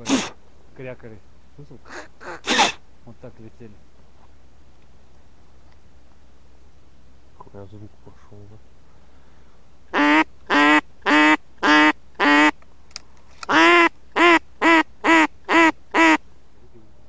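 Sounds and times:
duck quacking: 0:00.0 - 0:00.4, 0:01.9 - 0:02.8, 0:09.9 - 0:12.5, 0:13.5 - 0:16.2.

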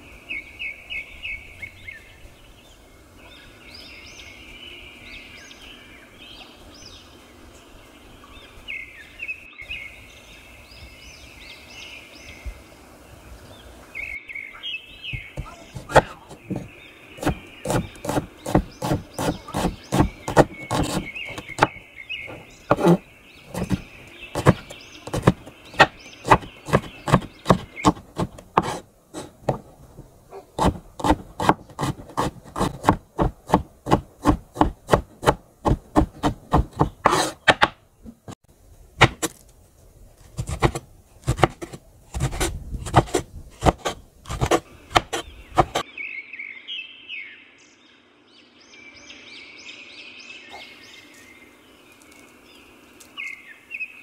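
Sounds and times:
knife chopping on wooden board: 0:15.1 - 0:23.8, 0:24.4 - 0:29.7, 0:30.6 - 0:37.8, 0:39.0 - 0:39.4, 0:40.4 - 0:45.8.

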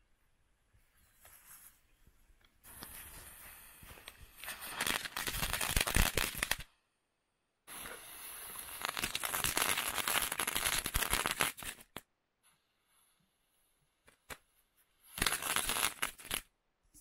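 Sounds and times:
crackling firework pops: 0:02.6 - 0:06.7, 0:07.7 - 0:12.1, 0:15.1 - 0:16.5.

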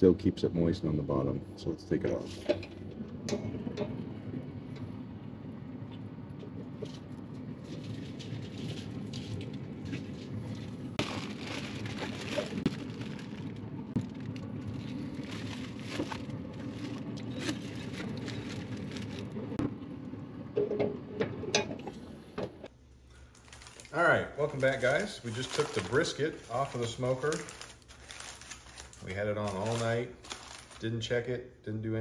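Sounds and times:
aluminium foil crinkling: 0:06.8 - 0:19.6, 0:23.1 - 0:31.2.

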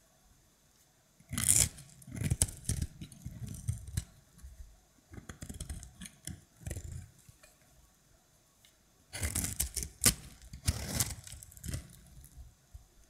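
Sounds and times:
dry soap crunching and crackling: 0:01.3 - 0:04.2, 0:05.1 - 0:07.2, 0:09.1 - 0:12.5.

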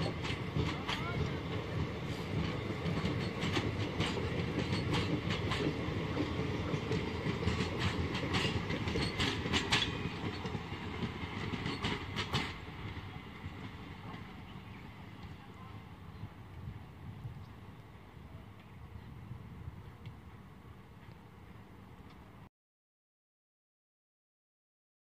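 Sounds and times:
train wheels clacking on rail joints: 0:00.0 - 0:15.4
train rumble: 0:00.0 - 0:22.5.

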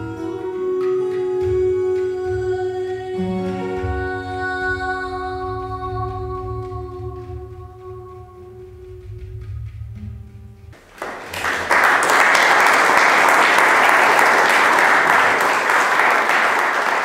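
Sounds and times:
audience applauding: 0:10.8 - 0:17.0.

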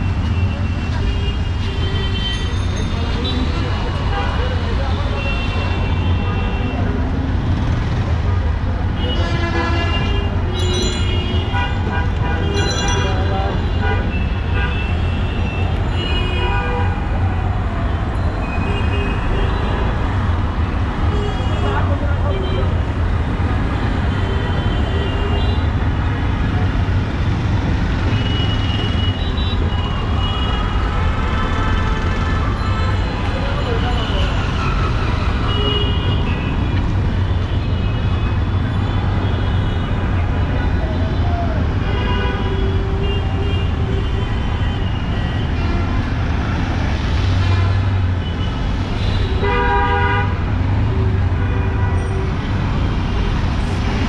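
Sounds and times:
traffic engine rumble: 0:00.0 - 0:54.0
vehicle horns honking: 0:47.6 - 0:50.5.

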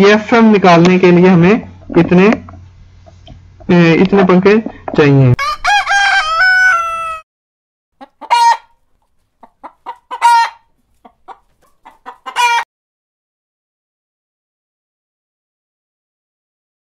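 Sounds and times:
rooster crowing: 0:05.4 - 0:07.3, 0:08.2 - 0:08.8, 0:10.1 - 0:10.7, 0:12.3 - 0:12.6
hen clucking: 0:08.0 - 0:12.7.

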